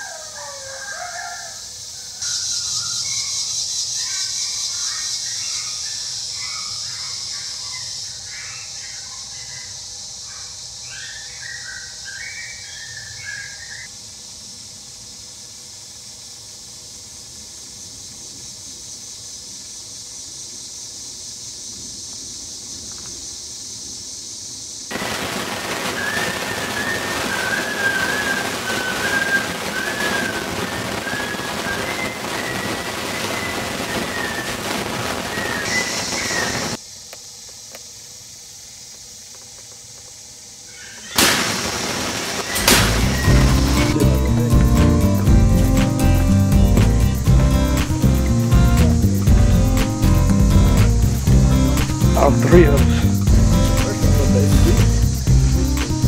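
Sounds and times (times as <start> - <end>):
even hiss: 0.0 - 56.0
bird-like chirps: 2.2 - 13.9, 25.9 - 36.8, 42.4 - 46.1
wavering whistle-like call: 10.9 - 13.9, 25.8 - 36.8, 42.4 - 45.3
steady high drone: 42.6 - 56.0.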